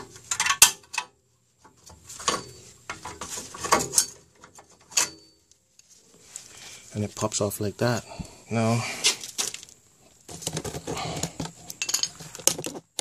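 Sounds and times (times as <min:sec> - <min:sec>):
metal clinks and scrapes: 0:02.0 - 0:06.1, 0:10.3 - 0:13.0.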